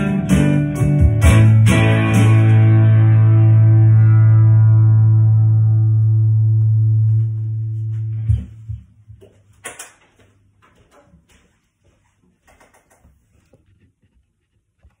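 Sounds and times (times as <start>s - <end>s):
faint footsteps: 6.0s - 15.0s.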